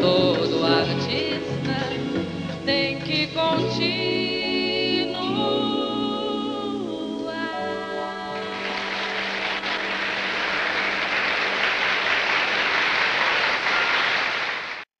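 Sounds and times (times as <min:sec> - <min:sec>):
audience applauding: 0:08.4 - 0:14.9.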